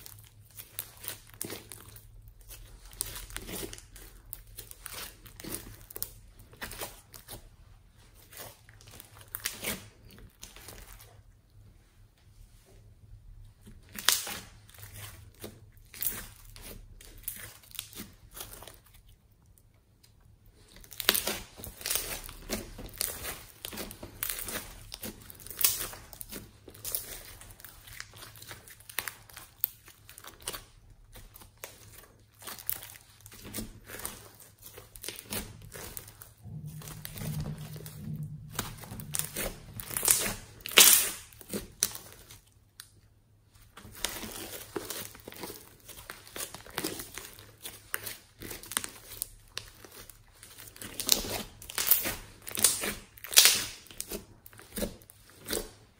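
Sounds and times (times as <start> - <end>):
hands squishing slime: 0.0 - 11.9, 13.4 - 55.9
slime crackles and pops: 13.8 - 18.9, 20.7 - 43.0, 43.7 - 55.8.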